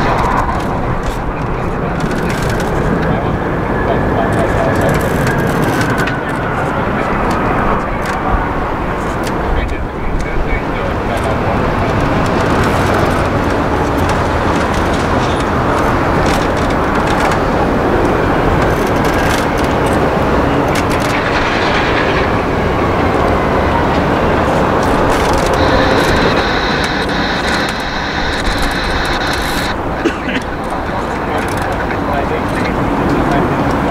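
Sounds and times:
jet engines roaring: 0.0 - 33.9
high whine: 20.2 - 33.9.

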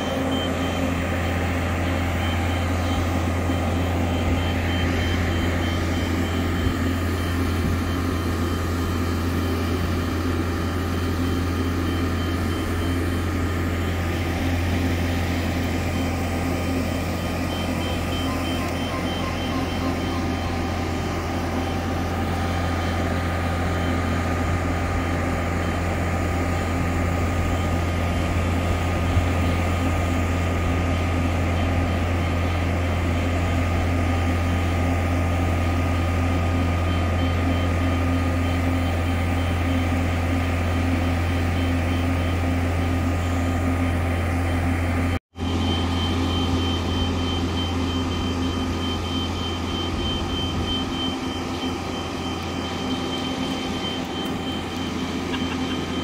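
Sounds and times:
transporter engine droning: 0.0 - 56.0.

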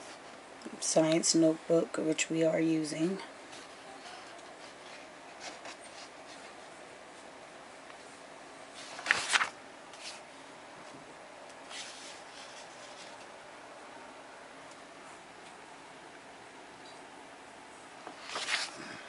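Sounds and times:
paper rustle: 3.5 - 6.6, 8.7 - 10.3, 11.7 - 13.3, 18.2 - 19.0
textbook pages turning: 3.5 - 6.6, 8.8 - 10.2, 11.7 - 13.3, 18.2 - 18.9.

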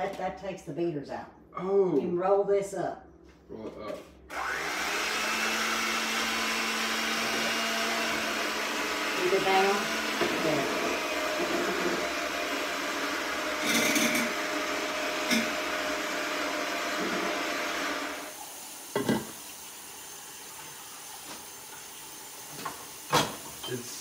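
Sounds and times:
electric hand mixer running: 4.3 - 22.4
dishes clattering: 18.9 - 19.4, 22.5 - 23.8.

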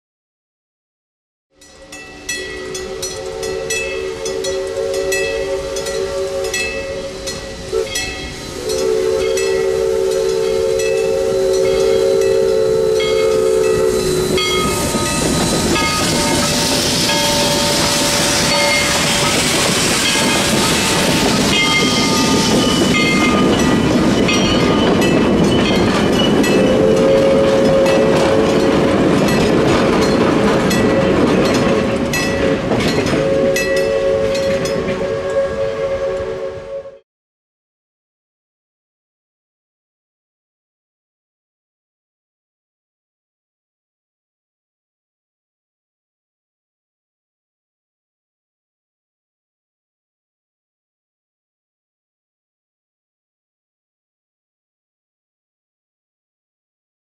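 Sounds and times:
crossing bell clanging: 1.6 - 35.4
train wheels clicking on rails: 1.6 - 35.5
steam locomotive whistle: 1.7 - 37.0
steam hissing and exhaust: 1.9 - 37.0.

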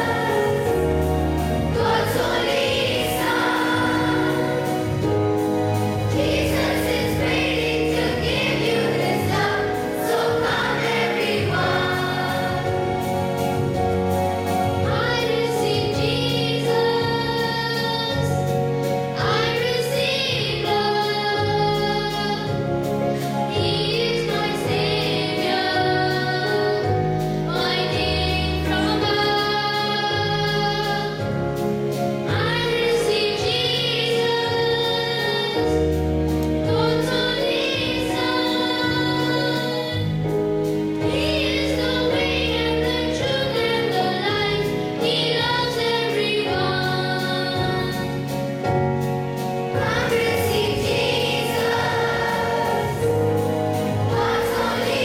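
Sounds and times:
children's choir singing a carol: 0.0 - 31.4, 32.2 - 48.4, 49.4 - 55.0
instrumental accompaniment with bass: 0.0 - 55.0
boys singing into microphones: 49.8 - 55.0.

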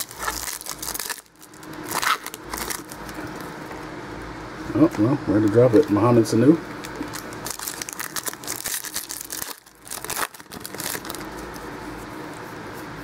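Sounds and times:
foil wrapper tearing and crinkling: 0.0 - 3.2, 6.8 - 11.7.

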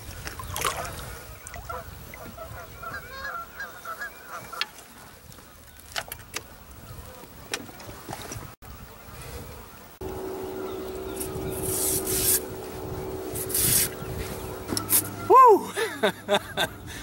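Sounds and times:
honking bird calls: 1.6 - 4.8, 10.0 - 17.0.

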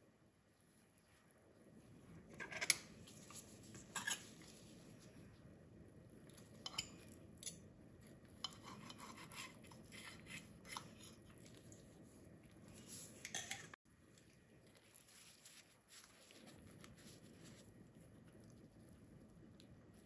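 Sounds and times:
knife scraping: 2.3 - 4.8, 6.6 - 11.5, 12.7 - 13.8.

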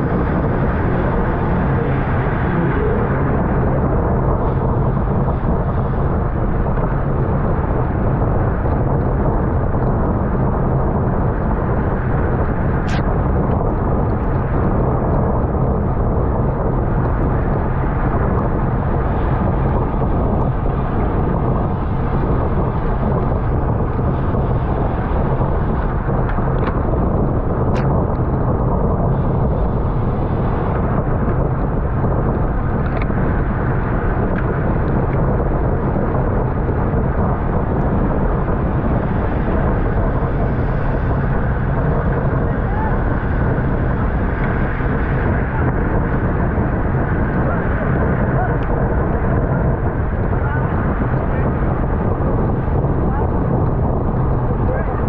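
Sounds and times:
bicycle road noise: 0.0 - 55.0
wind rush: 0.0 - 55.0.

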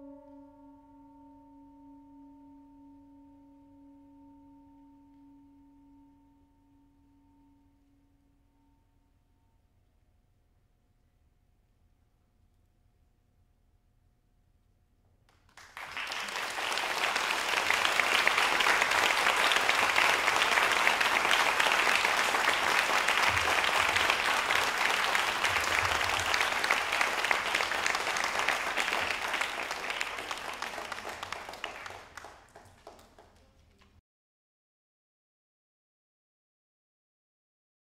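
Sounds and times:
audience applauding: 15.3 - 33.9.

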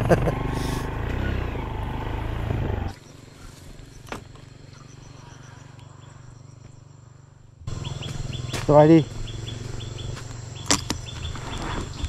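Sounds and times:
faint insect chirping: 2.9 - 12.0.

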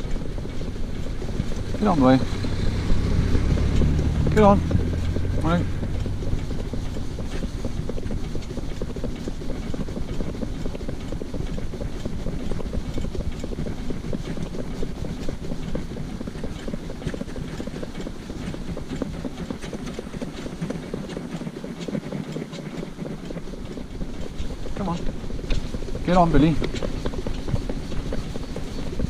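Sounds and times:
hooves clip-clopping on tarmac: 0.0 - 29.0
low rumble of cart: 0.0 - 29.0.

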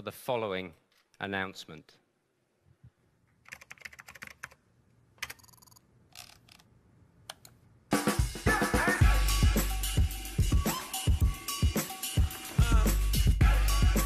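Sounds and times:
keyboard typing clicks: 3.4 - 4.6
loud music with drum beat: 7.9 - 14.0.

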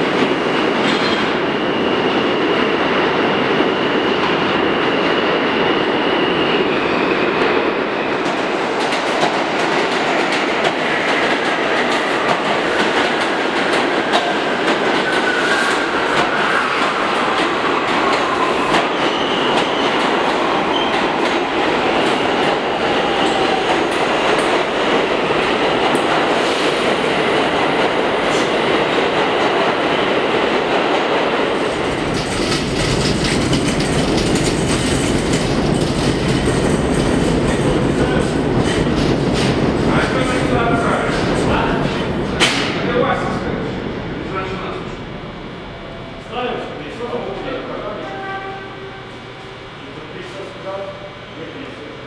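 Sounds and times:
approaching train rumble: 0.0 - 52.0
subway train wheel rumble: 0.0 - 52.0.

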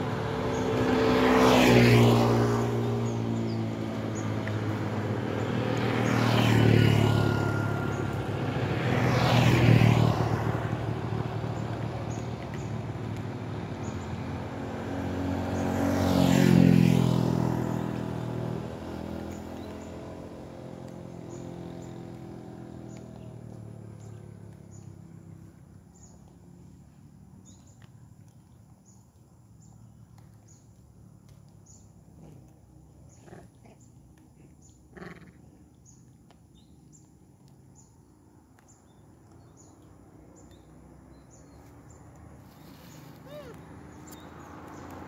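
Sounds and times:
vehicle engine: 0.0 - 37.9, 38.6 - 45.0
animal sounds: 32.3 - 36.1, 42.5 - 44.4.

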